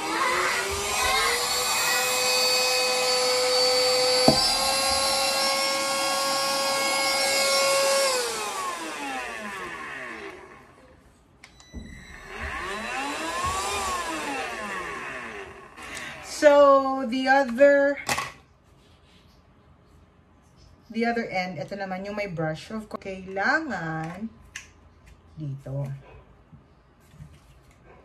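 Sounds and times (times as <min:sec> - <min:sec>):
handheld vacuum motor whine: 0:00.0 - 0:16.6.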